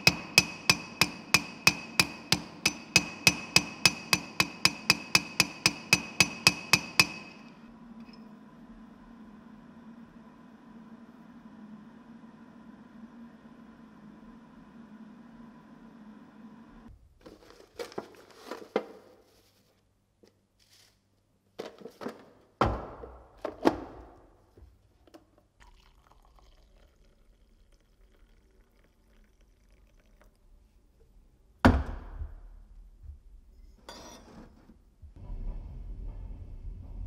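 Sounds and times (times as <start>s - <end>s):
coffee pouring: 25.3s - 31.0s.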